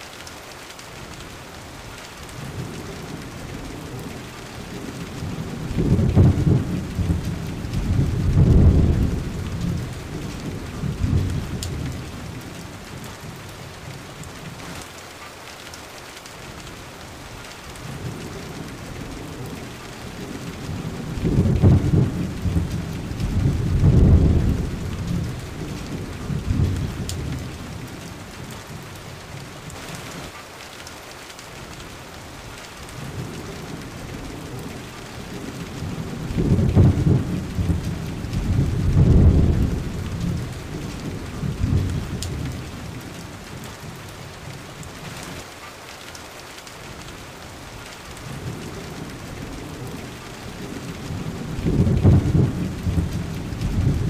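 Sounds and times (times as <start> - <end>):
steady rain hissing: 0.0 - 54.0
rolling thunder: 3.5 - 12.6, 17.9 - 28.8, 33.1 - 43.2, 48.2 - 54.0.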